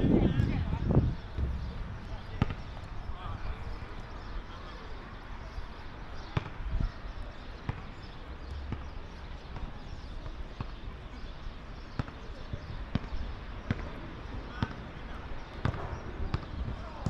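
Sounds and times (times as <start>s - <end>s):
low background noise: 0.0s - 17.0s
football kick thuds: 1.4s - 3.1s.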